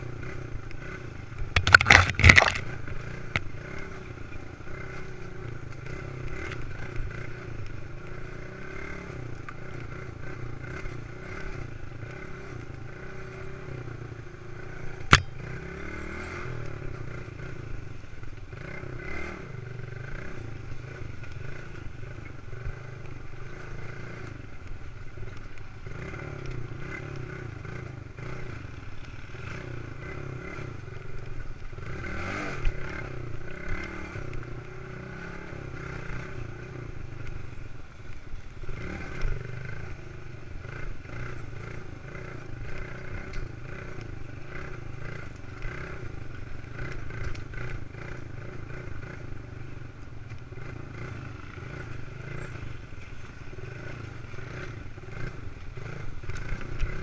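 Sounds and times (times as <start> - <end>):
dirt bike engine running: 0.0 - 57.0.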